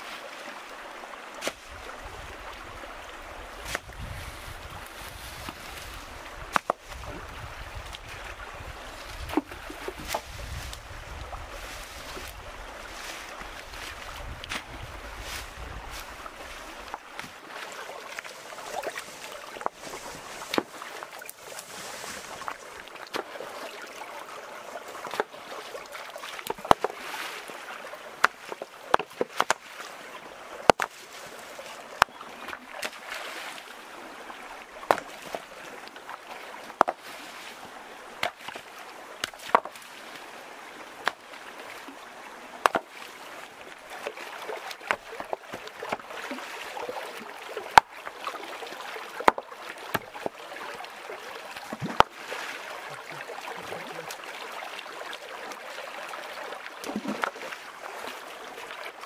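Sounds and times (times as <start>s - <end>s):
stream water running over stones: 0.0s - 59.0s
water splashing: 0.0s - 59.0s
rocks knocking together: 6.4s - 7.0s, 19.0s - 21.4s, 26.4s - 26.9s, 28.2s - 29.6s, 30.7s - 31.0s, 34.8s - 35.2s, 36.7s - 37.0s, 39.2s - 39.8s, 41.0s - 41.2s, 42.6s - 42.9s, 44.8s - 46.1s, 49.2s - 50.4s, 51.7s - 52.1s.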